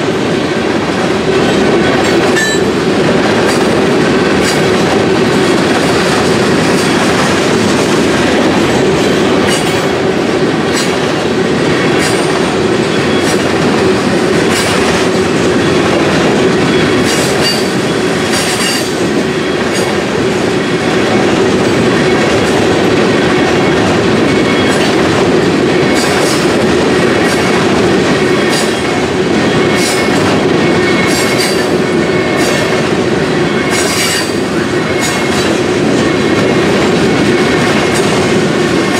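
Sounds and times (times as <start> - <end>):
train wheels rumbling on rail: 0.0 - 38.9
wheels clicking over rail joints: 1.5 - 20.1, 23.5 - 29.0, 29.6 - 30.4.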